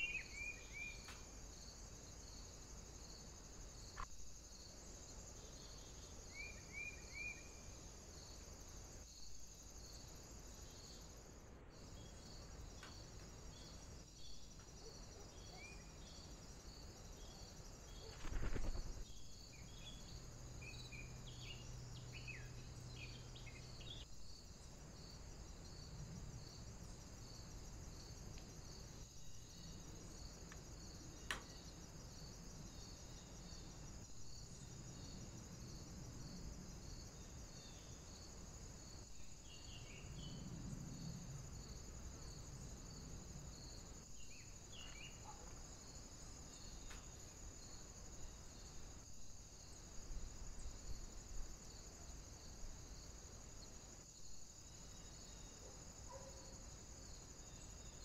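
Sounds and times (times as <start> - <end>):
faint bird chirps: 0.0 - 1.3, 5.6 - 7.7
high-pitched insect trill: 0.0 - 58.0.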